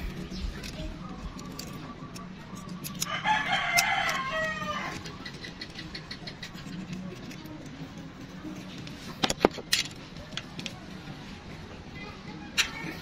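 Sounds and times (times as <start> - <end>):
rooster crowing: 3.0 - 5.1.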